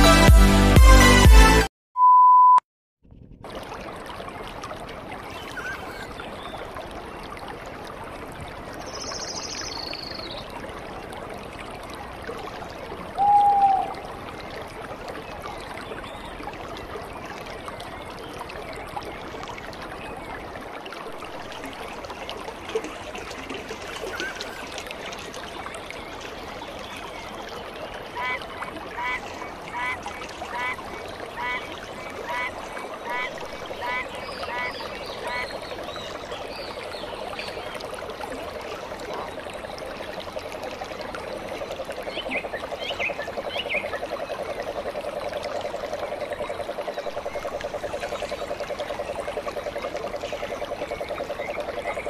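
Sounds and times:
test card beep: 2.0 - 2.6
water trickling in canal: 3.1 - 52.0.

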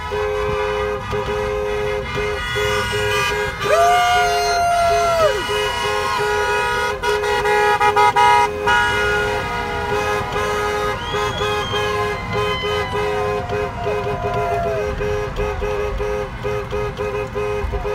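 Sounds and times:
higher-pitched horns honking: 0.0 - 17.9
two-note car horn: 0.0 - 17.9.

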